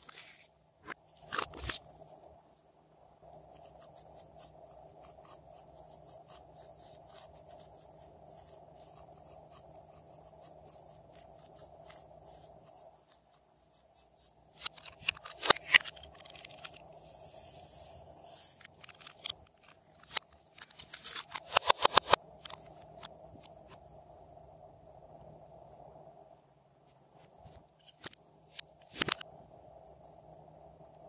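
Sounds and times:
fingertips rubbing glitter: 0:16.9 - 0:18.7.

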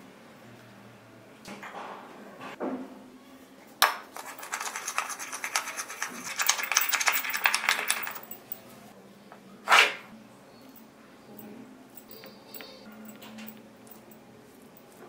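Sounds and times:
spoon clinking and scraping bowl: 0:04.0 - 0:08.6.

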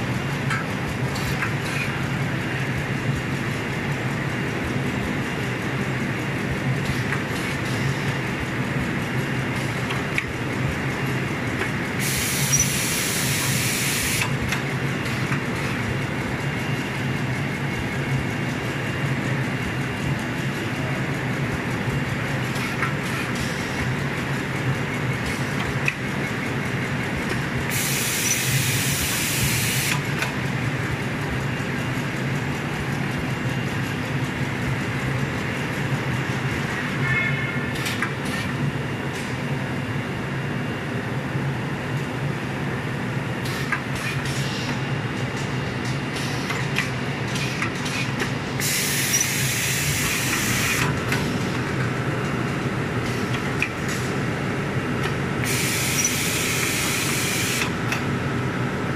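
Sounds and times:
machinery clatter and hum: 0:00.0 - 0:58.9.

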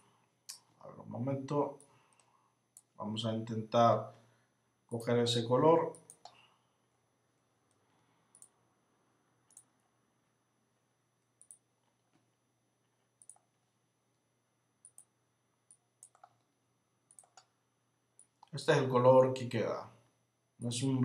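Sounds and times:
computer mouse clicks: 0:01.8 - 0:03.0, 0:05.9 - 0:06.4, 0:07.7 - 0:08.6, 0:09.5 - 0:09.9, 0:11.4 - 0:12.2, 0:13.2 - 0:13.6, 0:14.8 - 0:15.1, 0:15.7 - 0:16.5, 0:17.1 - 0:17.6.

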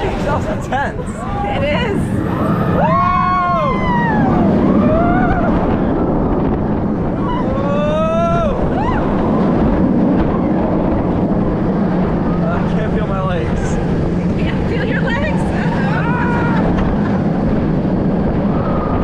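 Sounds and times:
roller coaster train rumble: 0:00.0 - 0:19.0
wind over microphone: 0:00.0 - 0:19.0
riders screaming: 0:01.4 - 0:05.7, 0:15.7 - 0:16.8.

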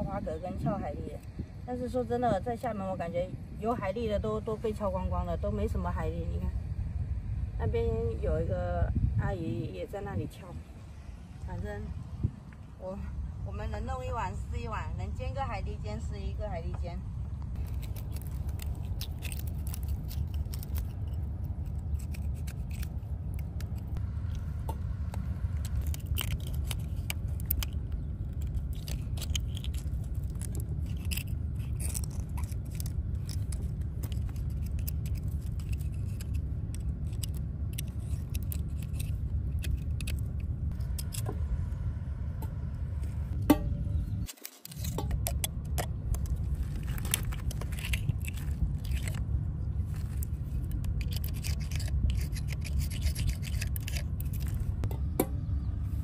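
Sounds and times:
steady low rumble: 0:00.0 - 0:56.0
metal pick scraping oyster shells: 0:17.6 - 0:24.4, 0:25.1 - 0:41.3, 0:44.0 - 0:49.3, 0:49.9 - 0:54.9.

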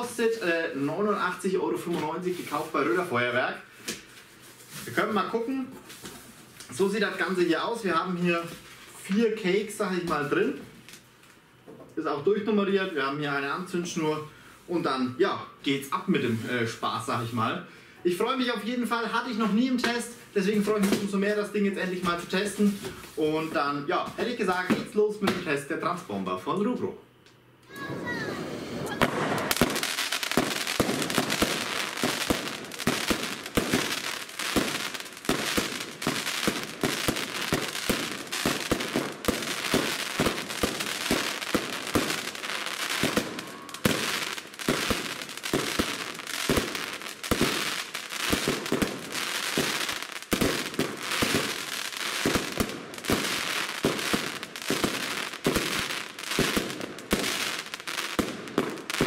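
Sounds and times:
firework cake firing rapidly: 0:27.8 - 0:59.0.

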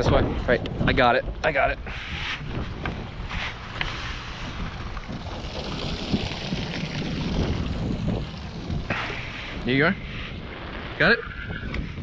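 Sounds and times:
fishing boat engine rumble: 0:00.0 - 0:12.0
wind buffeting the microphone: 0:00.0 - 0:12.0.

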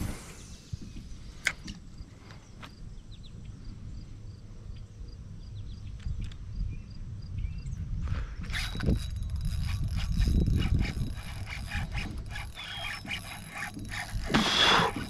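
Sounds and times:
wind rumble on microphone: 0:00.0 - 0:02.1, 0:02.7 - 0:15.0
faint high ticking: 0:08.5 - 0:15.0
sharp clicks: 0:08.5 - 0:15.0.

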